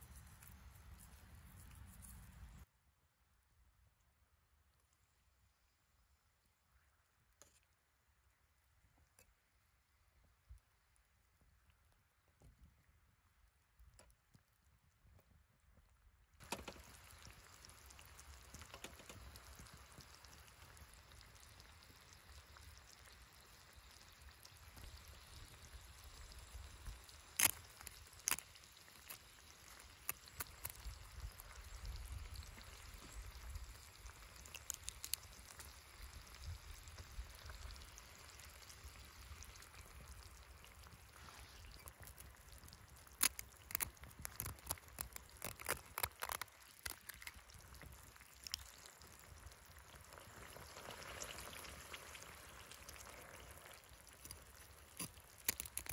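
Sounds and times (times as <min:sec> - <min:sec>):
wood fire crackles: 0:09.9 - 0:55.9
oil sizzling in a pot: 0:16.4 - 0:42.2, 0:47.6 - 0:55.9.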